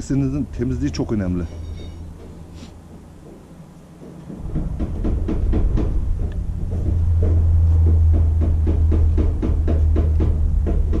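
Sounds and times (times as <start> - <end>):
engine droning with knocking: 0.0 - 11.0.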